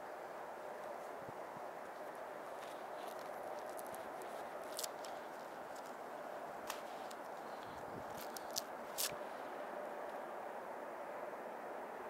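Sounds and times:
steady hiss: 0.0s - 12.0s
footsteps rustling through dry grass: 0.7s - 9.6s.

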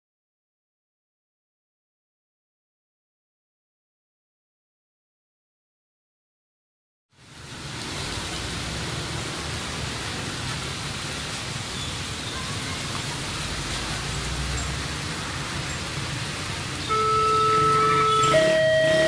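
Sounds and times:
rain hissing: 7.1s - 19.0s
cars and motorcycles passing: 7.2s - 19.0s.

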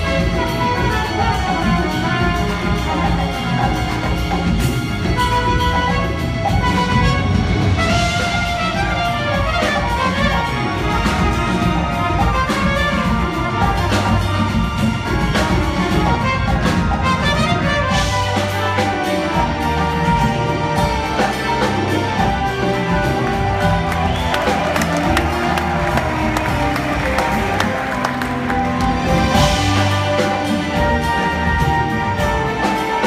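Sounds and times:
band and orchestra playing: 0.0s - 33.0s
drum hits: 22.3s - 31.1s.

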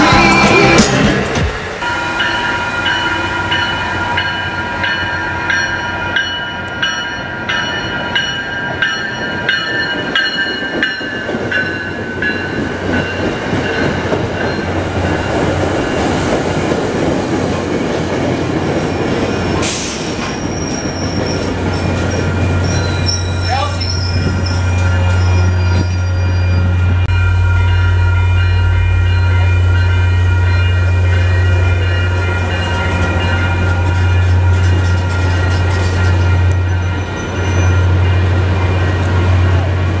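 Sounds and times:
train rumbling past: 0.0s - 40.0s
high steady tones: 20.7s - 39.6s.

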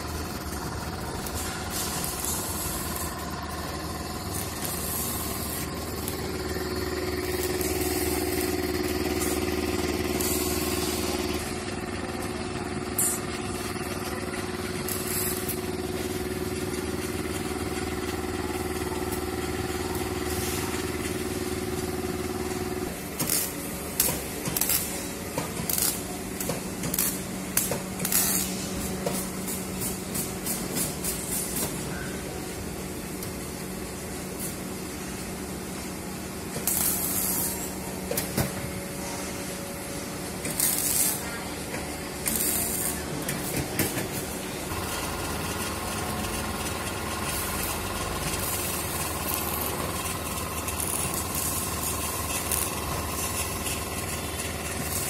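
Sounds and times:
generator engine running: 0.0s - 55.0s
sharp clicks and knocks: 23.2s - 28.4s, 41.7s - 44.2s.

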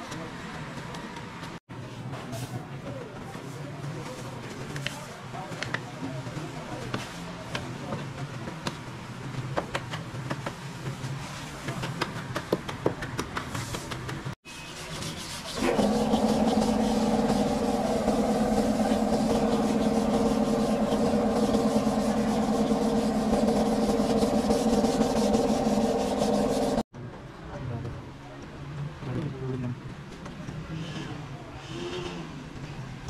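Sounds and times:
sanding block rasping: 14.6s - 26.8s
filler spreader scraping: 15.3s - 26.8s.

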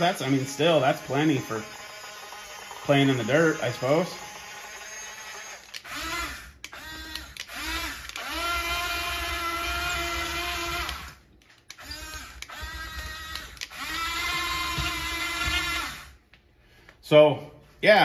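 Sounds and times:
small electric motors whining: 0.0s - 16.2s.

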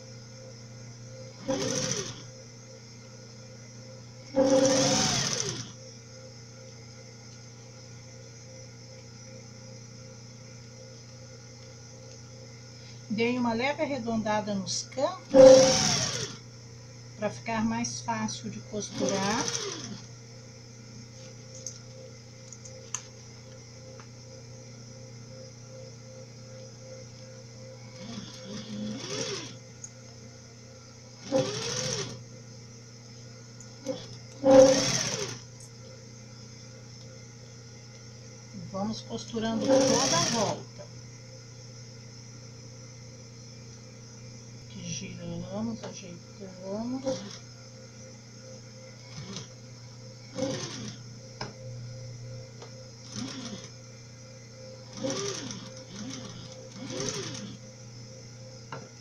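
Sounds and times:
sewing machine stitching: 1.4s - 2.3s, 4.4s - 5.7s, 15.3s - 16.4s, 18.8s - 20.0s, 27.9s - 29.6s, 31.2s - 32.2s, 33.8s - 35.4s, 39.5s - 40.6s, 47.0s - 47.4s, 49.1s - 49.5s, 50.3s - 51.0s, 53.1s - 53.7s, 54.9s - 57.6s.

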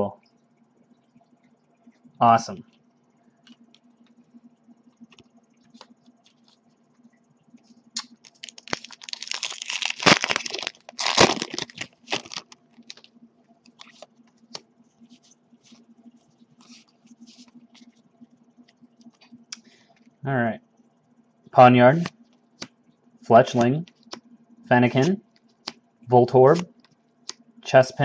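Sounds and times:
faint steady hum: 0.0s - 28.0s
cards rustling and clicking: 8.0s - 13.1s, 13.7s - 14.6s
foil wrapper crinkling: 8.0s - 13.1s.

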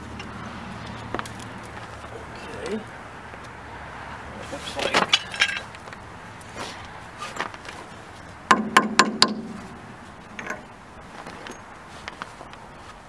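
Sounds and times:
sharp metallic knocks with ringing: 8.5s - 10.7s.

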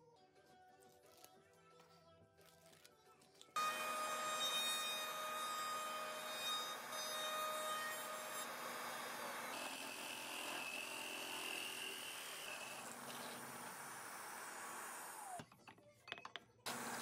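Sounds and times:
hole saw cutting wood: 3.6s - 15.4s, 16.7s - 17.0s
router high whine: 6.8s - 15.4s, 16.7s - 17.0s.

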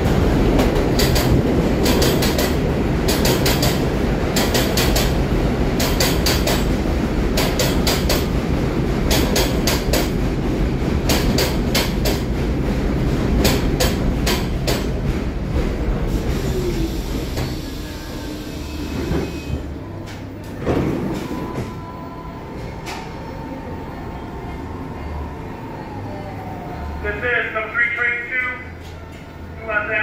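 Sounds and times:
subway train wheels clacking: 0.0s - 30.0s.

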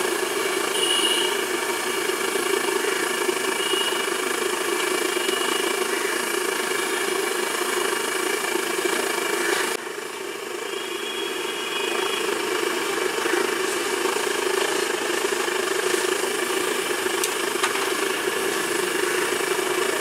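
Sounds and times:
engine-like rumble: 0.0s - 20.0s.

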